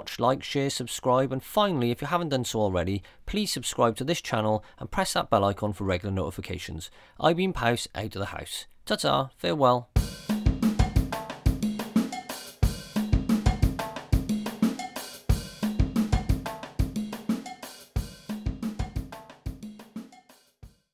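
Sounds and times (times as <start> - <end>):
drum beat with cymbals: 10.0 - 20.9.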